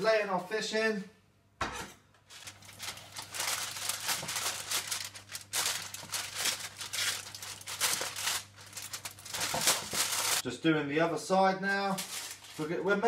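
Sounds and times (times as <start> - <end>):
aluminium foil crinkling: 2.3 - 10.4, 11.8 - 12.9.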